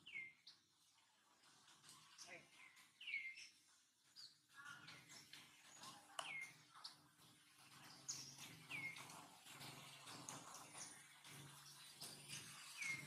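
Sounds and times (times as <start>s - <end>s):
faint bird twittering: 3.0s - 3.6s.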